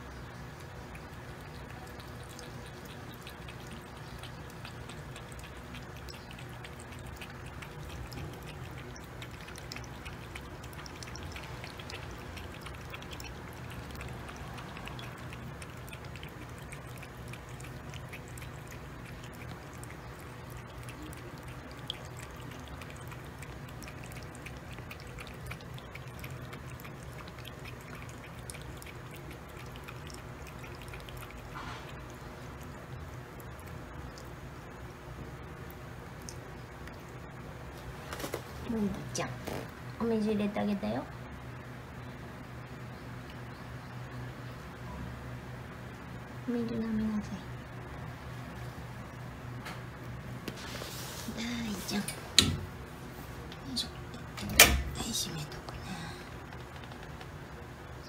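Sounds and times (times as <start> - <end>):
cat lapping water: 0.0 - 39.7, 45.8 - 57.9
steady low hum: 0.0 - 58.0.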